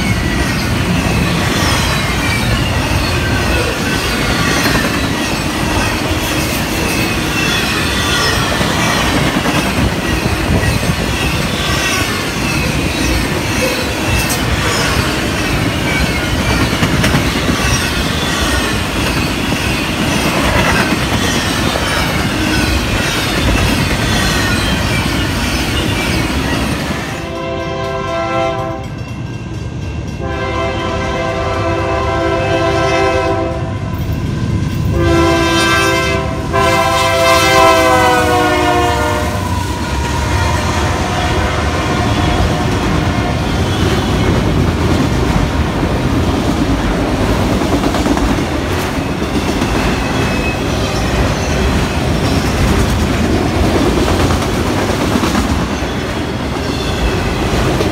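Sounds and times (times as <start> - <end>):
train wheels rolling: 0.0 - 31.8, 36.5 - 57.9
rail cars clattering: 0.0 - 57.9
locomotive air horn: 27.2 - 28.9, 30.2 - 33.9, 34.9 - 42.8.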